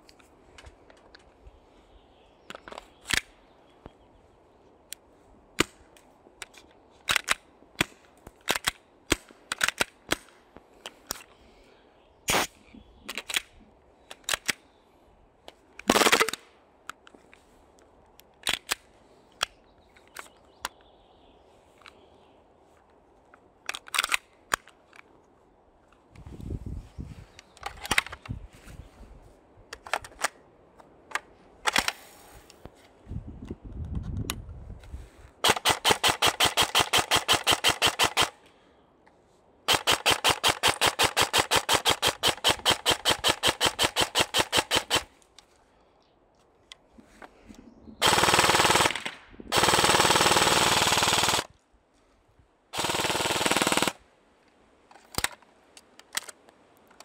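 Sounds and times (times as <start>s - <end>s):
airsoft guns firing: 35.4s - 38.4s, 39.7s - 45.1s, 48.0s - 51.5s, 52.8s - 54.0s.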